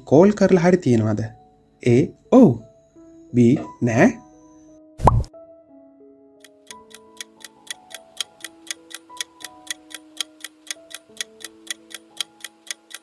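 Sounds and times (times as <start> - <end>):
soft background music notes: 0.0 - 13.0
clock ticking sound effect: 6.4 - 13.0.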